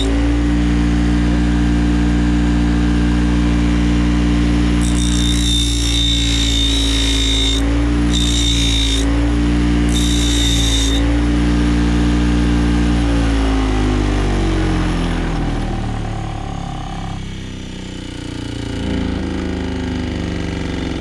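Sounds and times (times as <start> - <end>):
bench grinder motor hum: 0.0 - 21.0.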